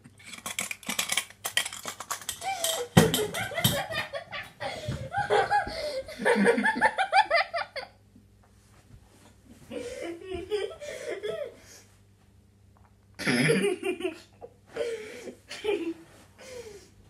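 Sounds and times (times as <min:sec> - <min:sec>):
boy laughing: 0:02.4 - 0:08.0, 0:09.7 - 0:11.6, 0:13.2 - 0:16.0.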